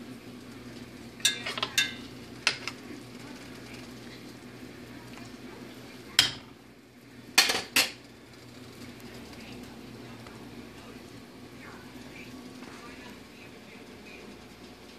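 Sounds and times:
steady low hum: 0:00.0 - 0:14.9
utensils clanking against a pot: 0:01.2 - 0:02.8, 0:06.2 - 0:06.5, 0:07.3 - 0:08.0.

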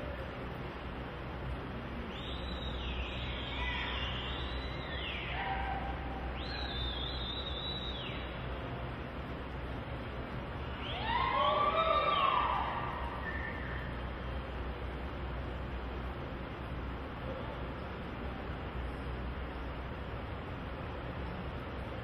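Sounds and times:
low arena hum: 0:00.0 - 0:22.0
spectators whistling: 0:02.1 - 0:08.4, 0:10.7 - 0:13.9
whoops and yells: 0:03.4 - 0:07.2, 0:10.8 - 0:13.9.

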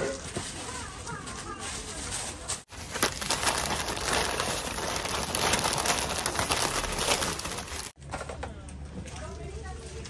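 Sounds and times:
wrapping paper crinkling: 0:00.0 - 0:08.0.

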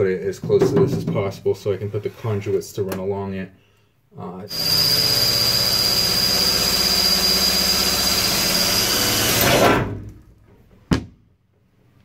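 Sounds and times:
cordless drill whining: 0:04.5 - 0:09.8.

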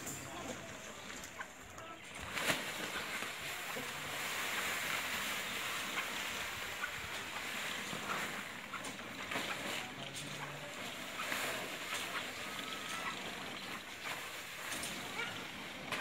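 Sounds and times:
plastic sack rustling: 0:02.1 - 0:08.6.

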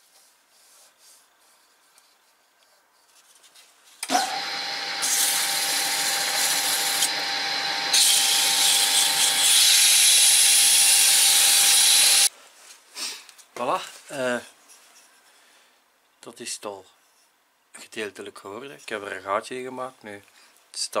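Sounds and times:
wood lathe motor whine: 0:04.0 - 0:12.3
turning tool scraping wood: 0:04.2 - 0:12.3.

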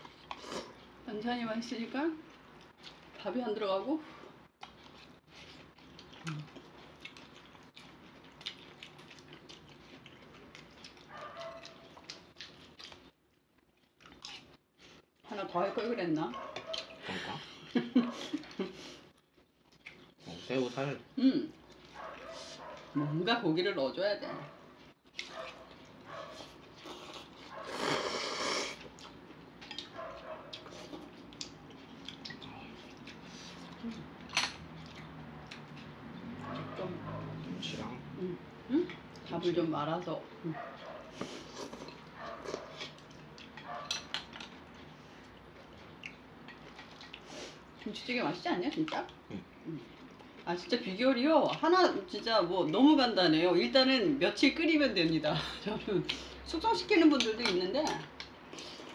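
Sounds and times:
chewing and mouth sounds: 0:00.0 - 0:01.0, 0:02.2 - 0:03.2, 0:04.2 - 0:23.1, 0:24.8 - 0:39.4, 0:40.3 - 0:52.0, 0:57.1 - 0:58.9
slurping noodles: 0:26.8 - 0:28.9.

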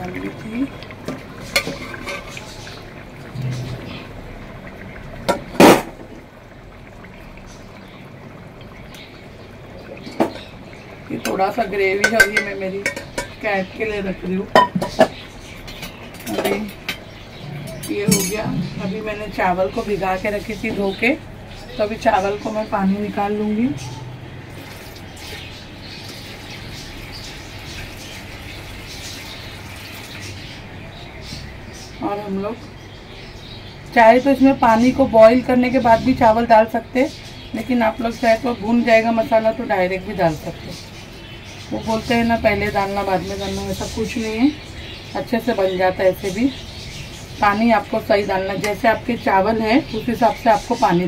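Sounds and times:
broth bubbling in pot: 0:00.0 - 0:51.0
low steady hum: 0:30.5 - 0:51.0.

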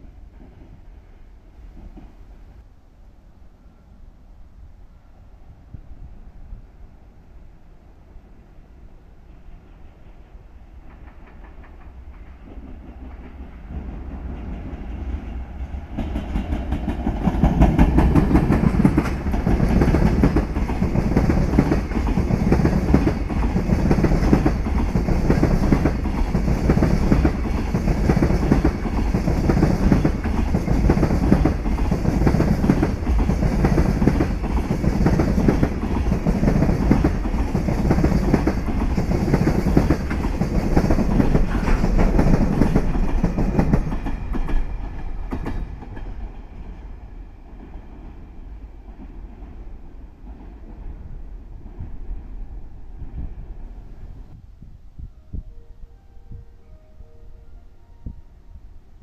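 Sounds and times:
freight train wheels clickety-clack: 0:01.7 - 0:02.4, 0:09.5 - 0:55.5.

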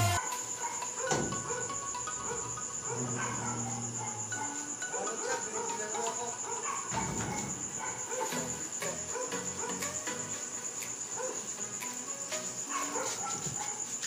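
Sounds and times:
crickets chirring: 0:00.0 - 0:14.0.

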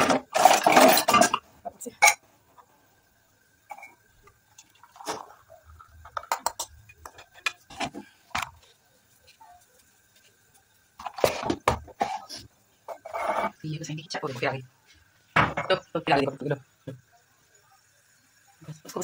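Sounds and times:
metal clinking on pottery: 0:00.4 - 0:02.2, 0:06.1 - 0:07.6
liquid pouring: 0:03.7 - 0:13.5.

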